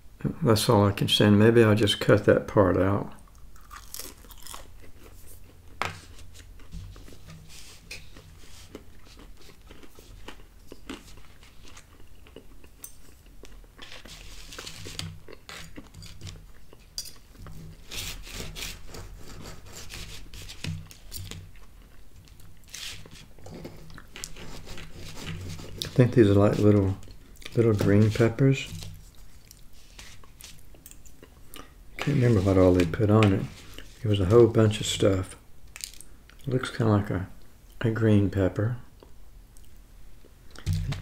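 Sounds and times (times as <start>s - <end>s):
chewing with crunching: 3.2s - 17.8s.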